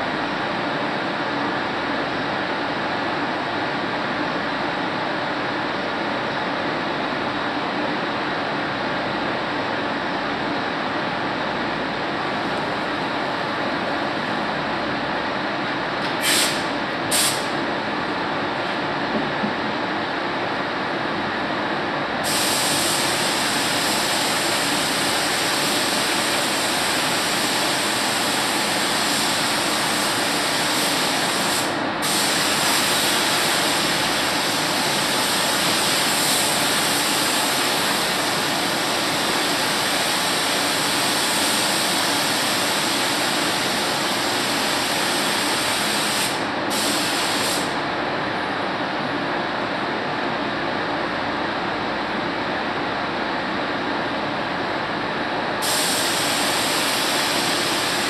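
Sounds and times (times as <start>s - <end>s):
paint spray gun hissing: 16.2s - 17.6s, 22.2s - 47.8s, 55.6s - 58.0s.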